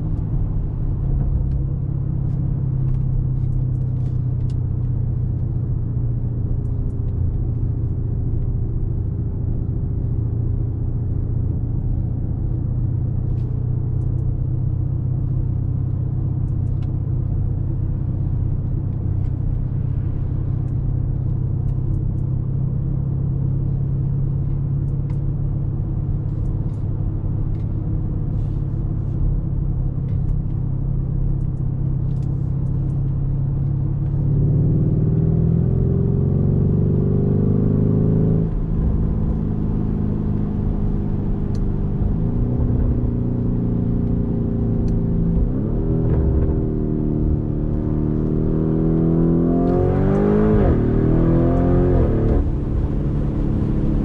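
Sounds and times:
car engine accelerating through gears: 0:31.2 - 0:54.0.

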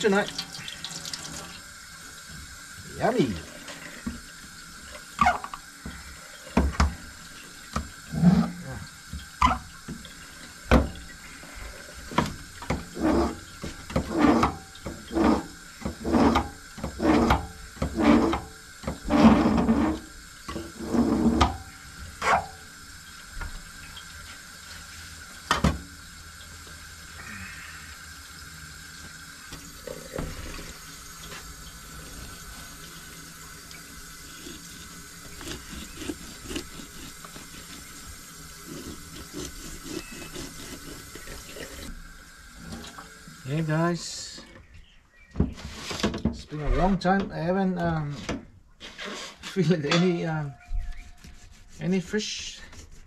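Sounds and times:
kitchen knife scraping: 0:34.3 - 0:41.9.

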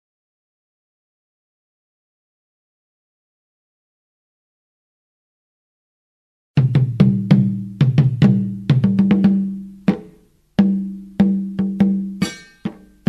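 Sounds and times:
pitched drum strikes ringing: 0:06.6 - 0:13.0
higher ringing percussion layer: 0:11.9 - 0:13.0.

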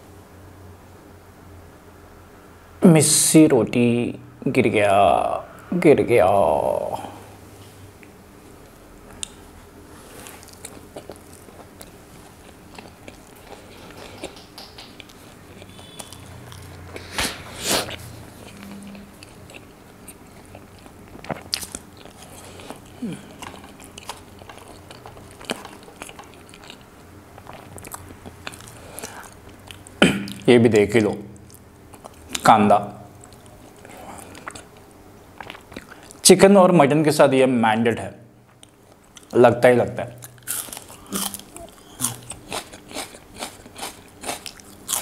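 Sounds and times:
wet chewing and lip smacks: 0:10.2 - 0:30.0, 0:33.2 - 0:36.2
crunchy bites: 0:40.2 - 0:45.0.

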